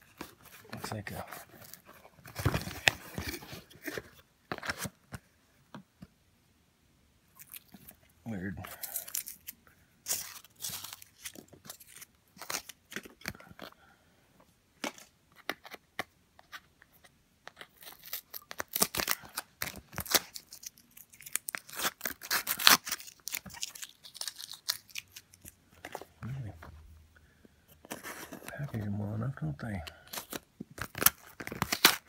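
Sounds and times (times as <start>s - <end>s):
foil crinkling and tearing: 8.7s - 13.2s, 17.6s - 25.6s, 30.0s - 32.0s.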